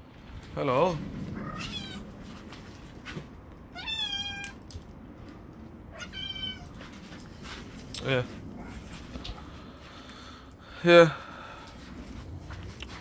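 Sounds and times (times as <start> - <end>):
kitten meowing: 1.4 - 2.0, 3.7 - 4.6, 5.9 - 6.8.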